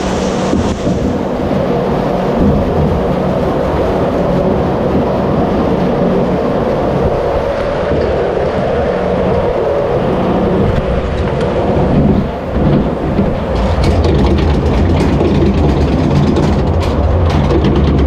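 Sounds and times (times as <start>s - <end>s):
lift chain mechanical rumble: 0.0s - 18.0s
clatter of clicks: 12.6s - 18.0s.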